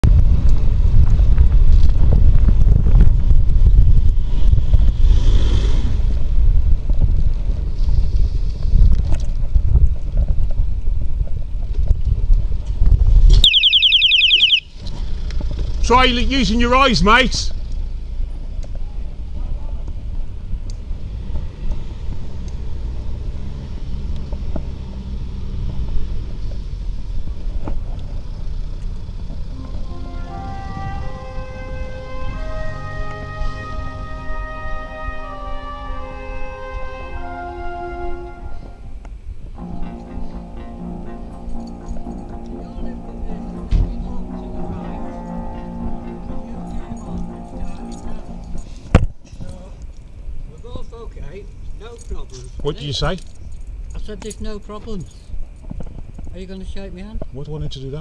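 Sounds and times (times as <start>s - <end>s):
wind buffeting microphone: 0.0s - 13.6s
bicycle tyres rumbling on paving: 0.1s - 13.2s
car tyres hissing past: 4.1s - 6.6s, 7.4s - 8.9s.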